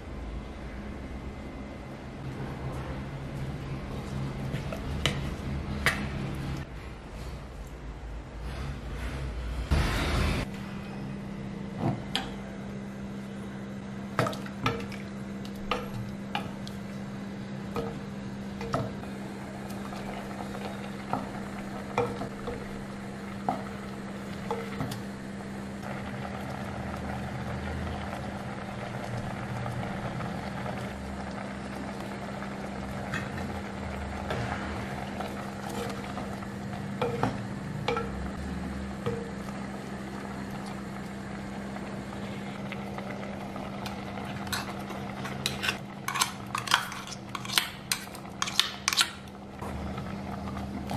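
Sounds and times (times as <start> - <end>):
low steady hum: 0.0 - 50.9
curry bubbling: 14.1 - 50.9.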